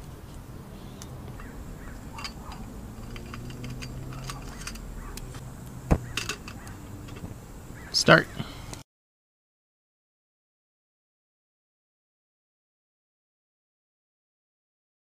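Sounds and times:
low steady rumble: 0.0 - 8.8
metal clicks and knocks: 1.3 - 7.3.

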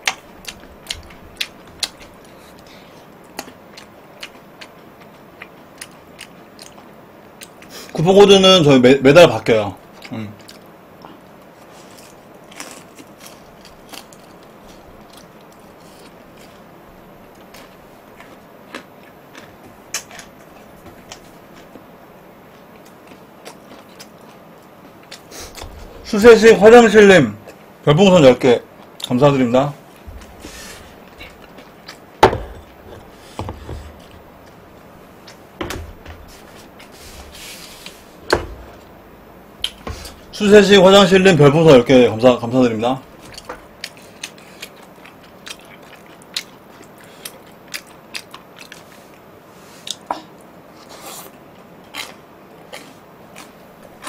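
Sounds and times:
man chewing food: 0.0 - 8.0, 9.8 - 26.0, 28.7 - 29.1, 29.8 - 40.4, 43.0 - 54.0
tableware knocking on a table: 32.2 - 32.7.

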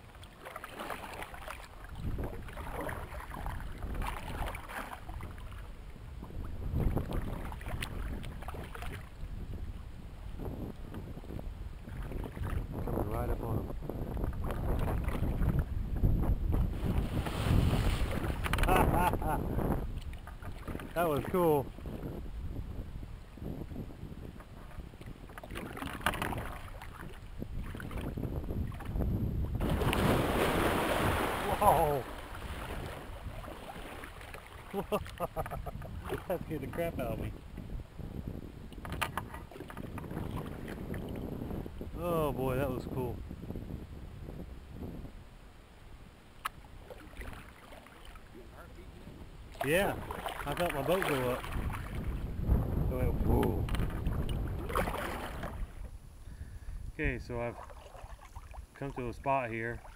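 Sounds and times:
water lapping at hull: 0.0 - 43.1, 46.2 - 59.9
wind rumble on microphone: 0.0 - 59.9
paddle splashing into water: 0.1 - 9.1, 11.8 - 12.7, 14.3 - 15.6, 16.5 - 21.8, 24.4 - 37.0, 38.7 - 41.2, 46.4 - 48.4, 49.5 - 52.4, 53.1 - 56.0, 57.5 - 59.0.

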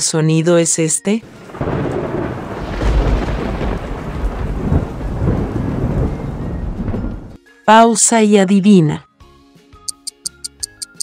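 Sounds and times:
thunder rumbling: 1.2 - 7.4.

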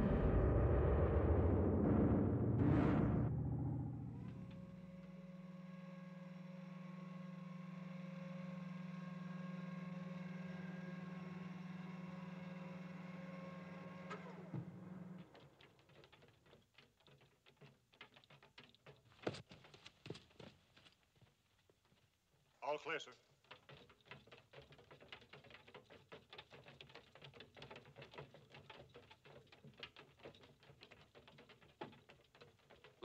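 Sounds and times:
electronic hum with thin tones: 2.7 - 15.1.

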